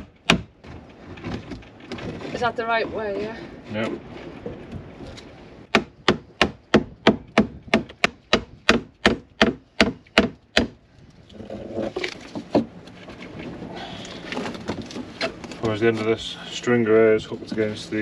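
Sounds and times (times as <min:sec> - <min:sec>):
hammer striking wood: 0:00.0 - 0:00.5, 0:05.7 - 0:10.8.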